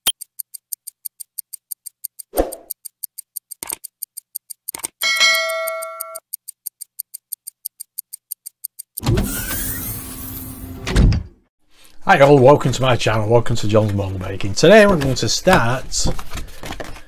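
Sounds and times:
clock ticking: 0.0 - 9.1.

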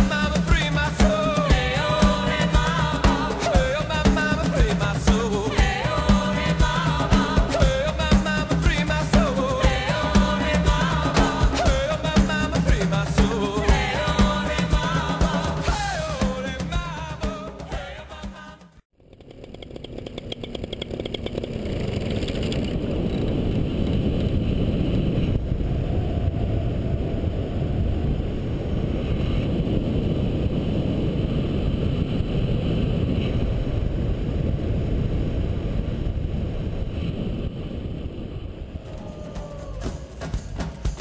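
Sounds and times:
paramotor engine and propeller: 18.9 - 25.7
wind buffeting microphone: 21.4 - 39.8.

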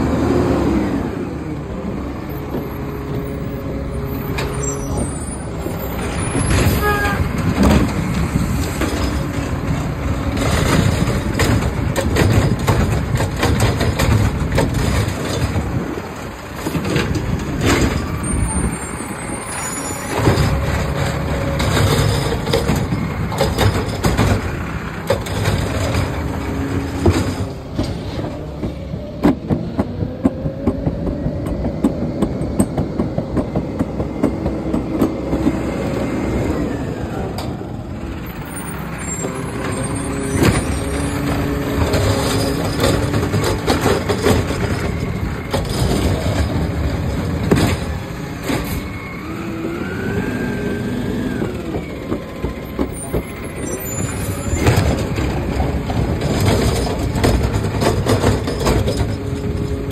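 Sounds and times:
diesel engine rumbling: 0.0 - 59.9
metal clanks and rattles: 4.3 - 31.0, 37.4 - 49.0, 51.7 - 59.9.

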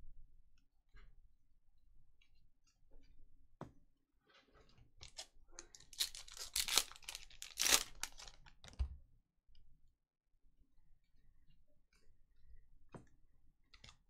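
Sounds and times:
wrapper tearing and crinkling: 5.0 - 8.7.

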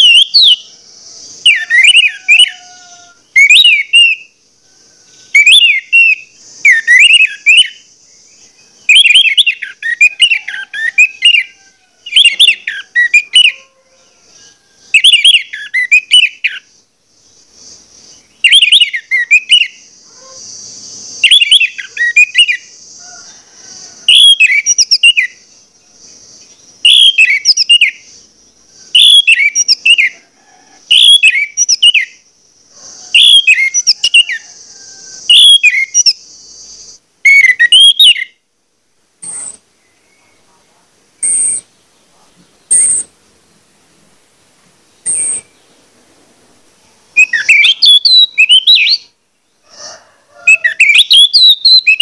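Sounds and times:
thrush singing whistled phrases: 0.0 - 4.4, 5.3 - 7.9, 8.8 - 13.6, 14.9 - 16.7, 18.1 - 19.9, 20.5 - 22.8, 23.7 - 25.4, 26.8 - 28.2, 28.9 - 30.2, 30.9 - 32.2, 33.1 - 34.5, 35.1 - 38.4, 47.2 - 49.1, 50.5 - 52.0.

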